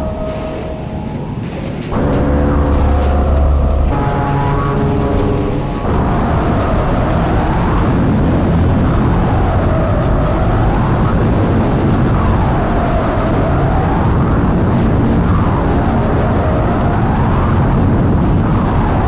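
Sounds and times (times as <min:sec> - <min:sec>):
swooping tone: 0:00.0 - 0:14.3
harsh noise music: 0:00.0 - 0:19.0.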